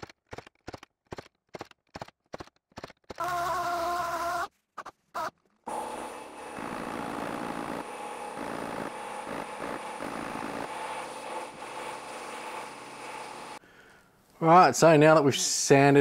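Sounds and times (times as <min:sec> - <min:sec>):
power sander on sheet steel: 0:05.7 - 0:13.6.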